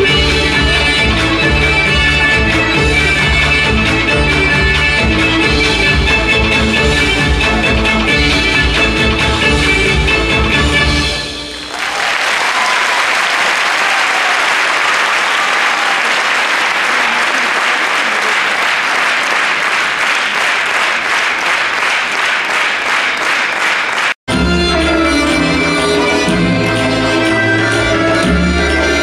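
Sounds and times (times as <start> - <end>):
audience applauding: 0.0 - 9.8, 11.6 - 24.2.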